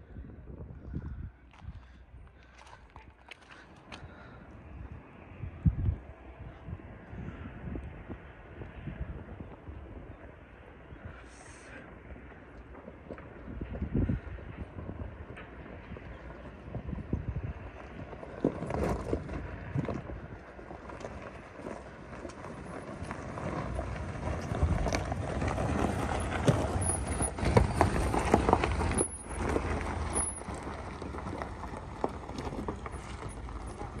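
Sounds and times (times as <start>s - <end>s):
low engine note: 0.0s - 34.0s
tyres crunching on gravel: 1.5s - 4.5s, 11.1s - 34.0s.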